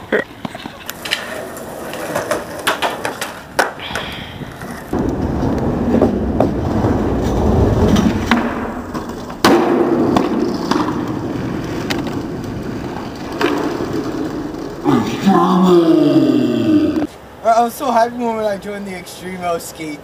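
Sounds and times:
skateboard wheels rolling on concrete: 0.0 - 20.0
skateboard clack: 0.4 - 14.9.

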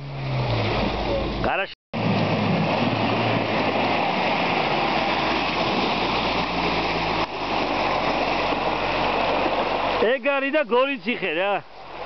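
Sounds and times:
water splashing and spraying: 0.0 - 12.0
engine pulling under load: 2.0 - 10.3.

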